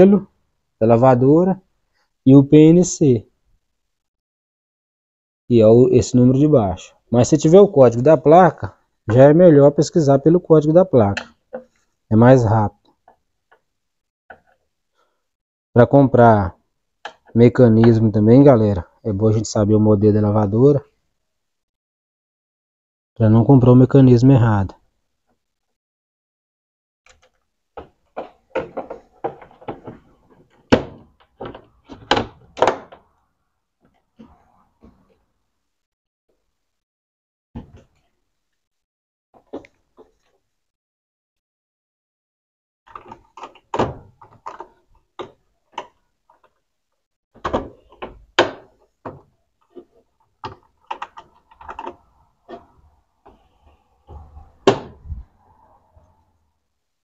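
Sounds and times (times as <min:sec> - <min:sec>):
plastic knocks and clicks: 0:11.1 - 0:11.8, 0:27.1 - 0:33.1, 0:39.4 - 0:40.4, 0:42.9 - 0:46.6, 0:47.4 - 0:53.4.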